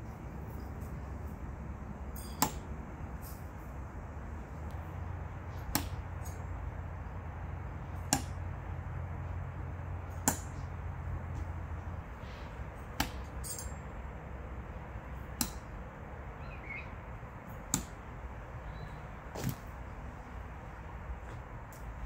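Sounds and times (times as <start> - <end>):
knives thunking into tree trunk: 2.2 - 2.7, 5.6 - 6.4, 8.0 - 8.4, 10.1 - 10.7, 13.0 - 13.8, 17.7 - 18.0, 19.3 - 19.7.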